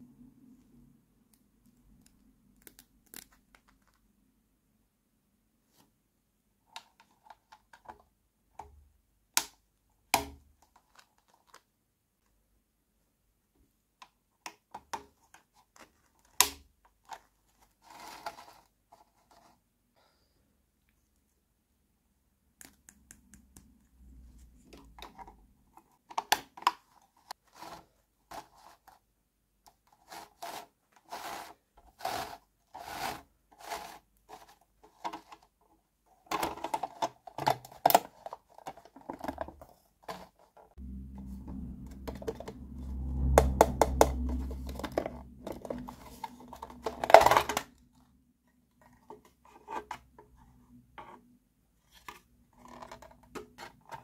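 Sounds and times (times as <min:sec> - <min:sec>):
low hum: 0:40.8 - 0:46.9.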